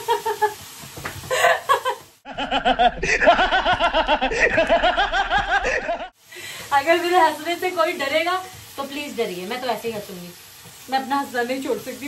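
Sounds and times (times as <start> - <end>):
woman laughing: 0.0 - 0.6, 1.2 - 6.1
man laughing loudly: 1.3 - 6.1.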